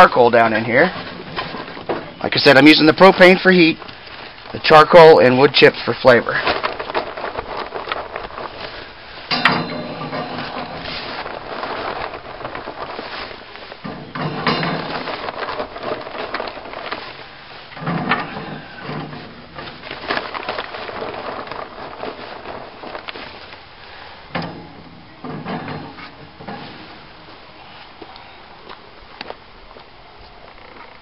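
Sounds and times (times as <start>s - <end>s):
charcoal clattering: 5.9s - 27.4s.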